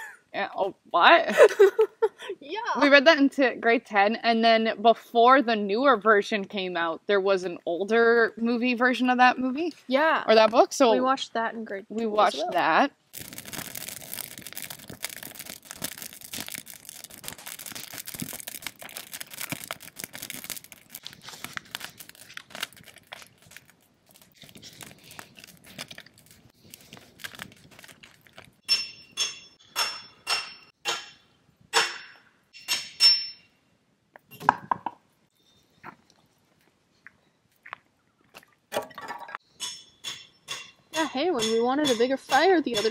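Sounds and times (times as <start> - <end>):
crinkling and rustling: 13.1 - 28.6
sharp ringing clinks: 28.7 - 30.7, 39.5 - 41.6.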